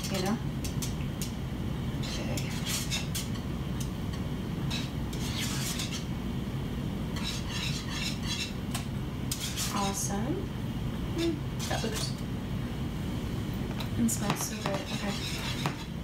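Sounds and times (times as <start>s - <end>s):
whisk scraping metal saucepan: 2.0s - 3.4s, 4.7s - 6.1s, 7.2s - 8.6s, 9.3s - 10.0s, 14.3s - 16.0s.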